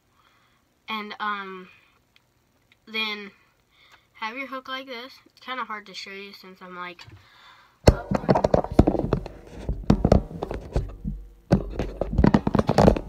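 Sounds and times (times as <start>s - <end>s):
phone handling rubbing and thumps: 7.9s - 13.0s.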